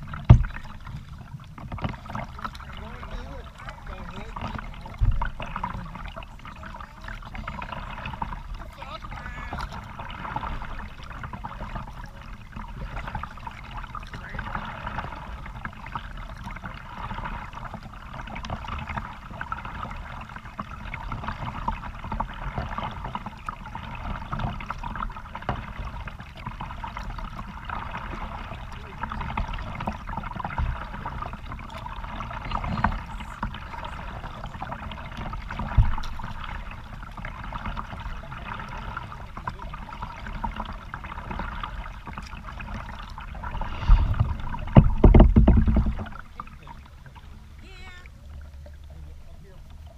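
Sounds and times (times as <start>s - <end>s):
creek water splashing: 0.0s - 49.9s
steady low rumble: 27.9s - 49.9s.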